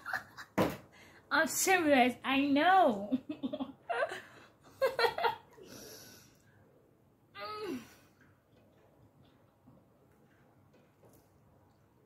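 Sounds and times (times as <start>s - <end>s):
woman laughing: 3.1s - 5.5s
breathy exhale: 5.6s - 6.4s.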